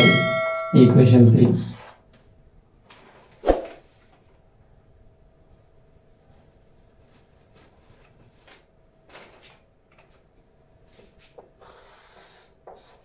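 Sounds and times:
faint knocks and rustles: 0:05.7 - 0:11.6
chalk scraping on board: 0:11.2 - 0:13.0.

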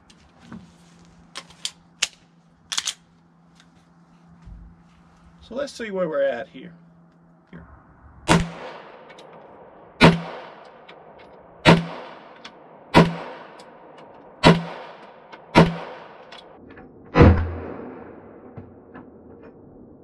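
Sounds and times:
pistol shots: 0:08.3 - 0:09.4, 0:10.0 - 0:16.5.

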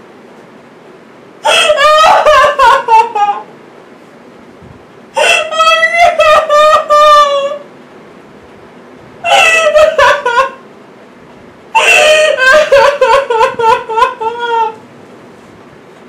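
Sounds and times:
woman sobbing: 0:01.4 - 0:03.5, 0:05.2 - 0:07.6, 0:09.2 - 0:10.6, 0:11.8 - 0:14.8.

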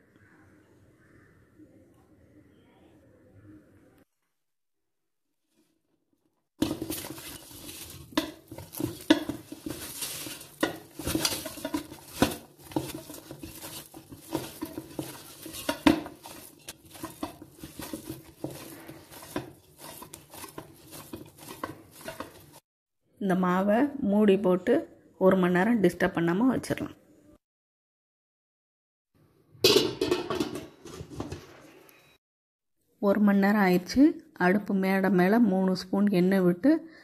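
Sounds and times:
dough slapping and squishing: 0:06.6 - 0:22.6.

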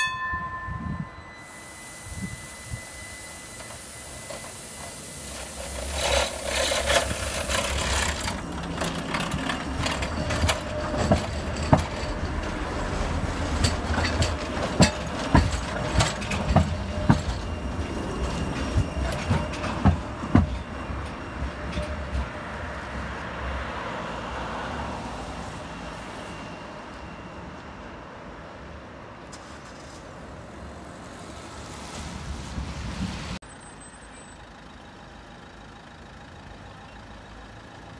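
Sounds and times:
tram passing: 0:00.0 - 0:37.9
hissing rush: 0:01.3 - 0:09.4
wheels clacking over rail joints: 0:03.5 - 0:23.0.

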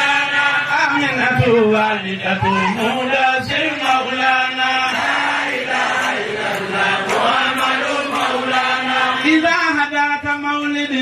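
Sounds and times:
man chanting into a microphone: 0:00.0 - 0:05.0, 0:09.2 - 0:11.0.

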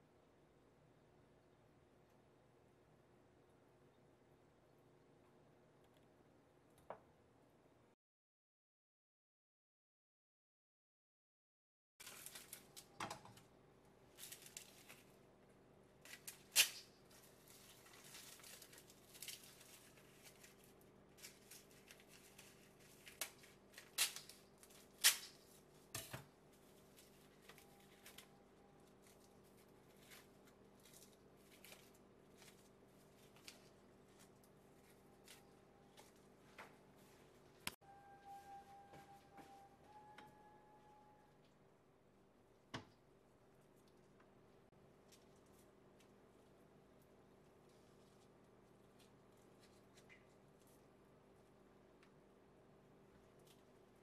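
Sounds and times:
faint steady hum: 0:00.0 - 0:08.0, 0:12.1 - 0:54.0
nori sheets crinkling: 0:12.0 - 0:13.0, 0:14.1 - 0:15.2, 0:16.0 - 0:25.9, 0:26.5 - 0:37.6.

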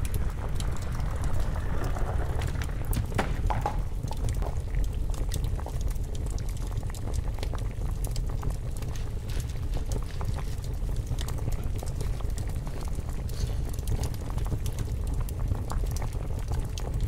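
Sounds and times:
low rumble: 0:00.0 - 0:07.9
water boiling in a pot: 0:00.0 - 0:17.0.

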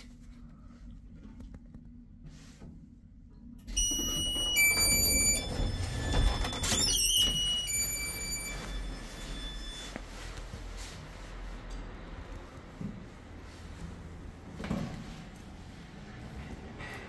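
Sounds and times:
lift mechanical rumble: 0:02.9 - 0:17.0
lift door squealing open: 0:03.7 - 0:10.0
high electronic tones: 0:03.8 - 0:10.0.

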